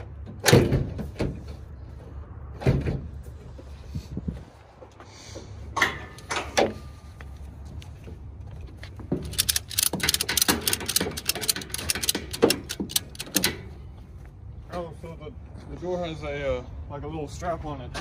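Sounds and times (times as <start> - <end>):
ratchet strap buckle clicking: 9.2 - 13.5.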